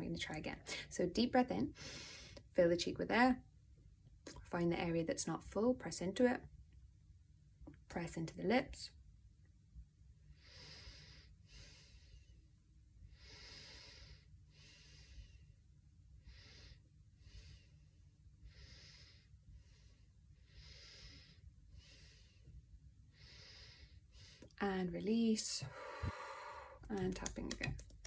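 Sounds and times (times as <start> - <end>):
faint breathing through nose: 1.8 - 2.4, 10.3 - 12.5, 13.1 - 15.6, 16.2 - 24.6, 25.7 - 26.8.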